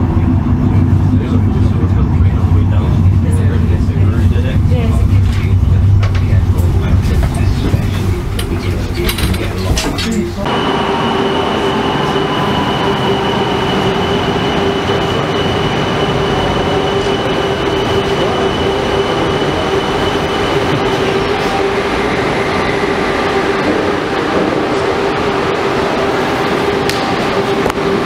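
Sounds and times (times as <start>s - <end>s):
funicular car rumbling on rails: 0.0s - 28.0s
thin high whine: 10.5s - 28.0s.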